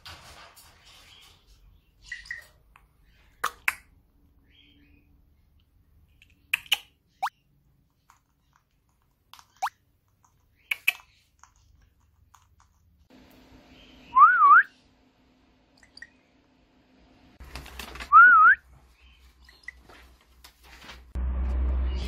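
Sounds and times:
parrot beak clicks: 6.2 - 6.9, 9.4 - 11.6.

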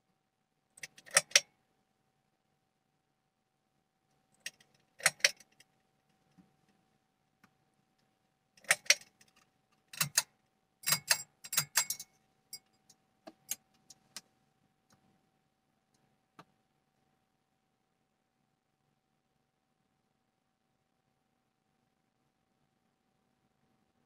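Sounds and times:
faint steady hum: 0.0 - 24.0
pull-chain switch clicks: 0.8 - 1.5, 4.4 - 5.6, 8.6 - 9.2, 10.0 - 12.1
metal ball chains jangling: 10.8 - 12.7.

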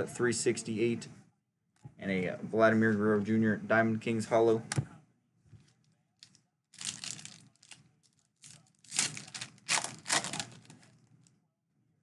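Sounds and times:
wrapper tearing and crinkling: 6.8 - 11.0.

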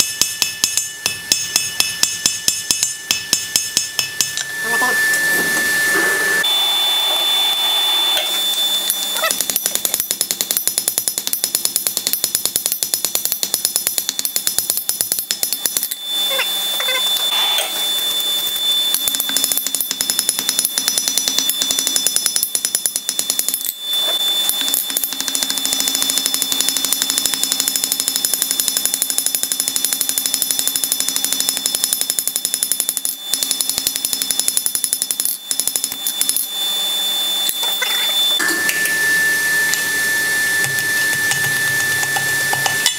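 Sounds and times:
hammer striking metal on anvil: 0.0 - 4.6, 40.6 - 42.9
anvil ringing: 0.0 - 5.1, 40.6 - 42.9.

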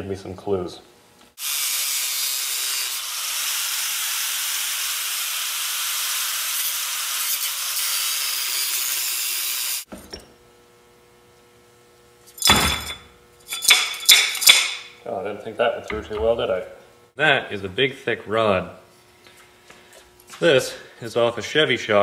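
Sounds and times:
angle grinder cutting steel: 1.4 - 9.9.

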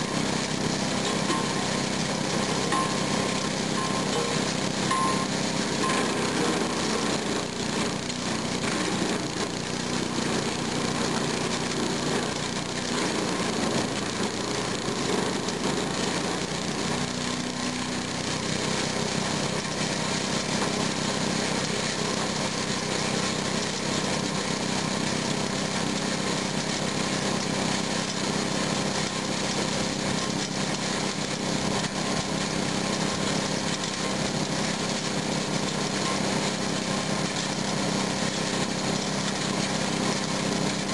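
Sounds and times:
small gasoline engine running: 0.0 - 40.9.

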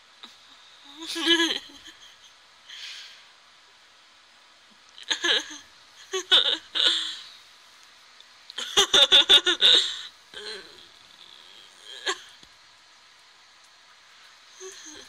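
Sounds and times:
person giggling: 1.0 - 2.3, 8.6 - 10.8.

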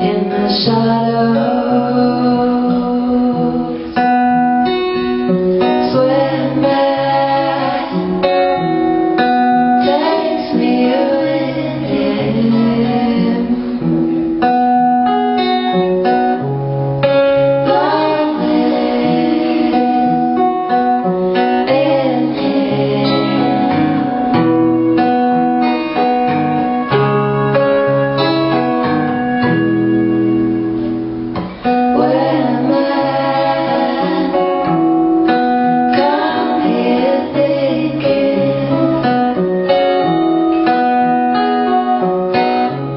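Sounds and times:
woman singing: 0.0 - 13.8, 17.6 - 24.3, 31.7 - 40.3
acoustic guitar: 0.0 - 42.9.

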